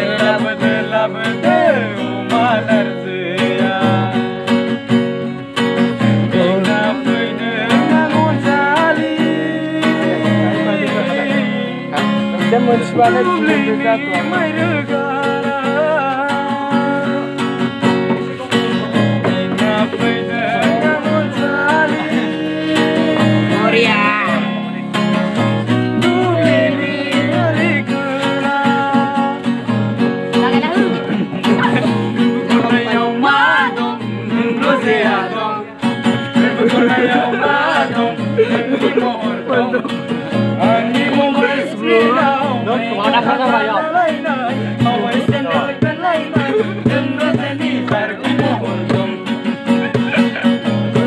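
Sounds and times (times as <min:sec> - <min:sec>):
young men singing together: 0:00.0 - 0:04.9, 0:05.6 - 0:24.8, 0:25.4 - 0:29.8, 0:30.6 - 0:51.0
acoustic guitar strumming: 0:00.0 - 0:51.0.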